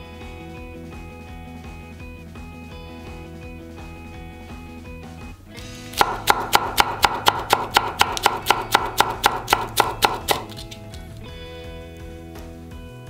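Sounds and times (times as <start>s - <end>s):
soft background music: 0.0s - 13.0s
knife chopping on wooden board: 6.0s - 10.8s.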